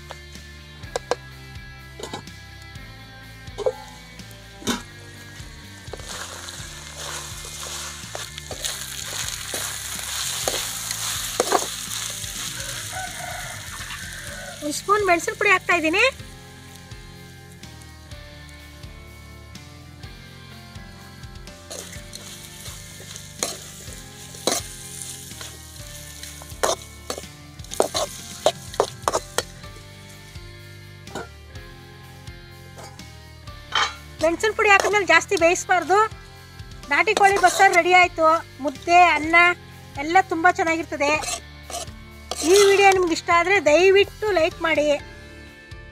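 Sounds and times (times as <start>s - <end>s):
food sizzling in oil: 3.6s - 18.6s, 21.6s - 31.3s, 33.7s - 40.0s, 40.6s - 43.3s
utensil scraping and knocking pan: 5.8s - 11.8s, 21.7s - 29.8s, 31.1s - 31.4s, 32.8s - 33.0s, 37.0s - 37.9s, 41.1s - 43.1s.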